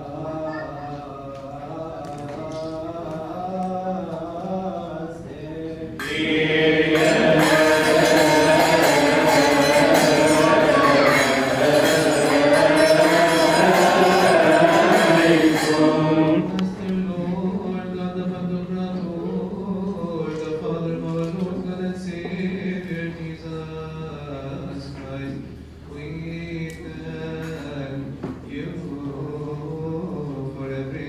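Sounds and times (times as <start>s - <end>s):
man chanting: 0.0s - 24.8s
chorus of voices chanting: 5.8s - 17.8s.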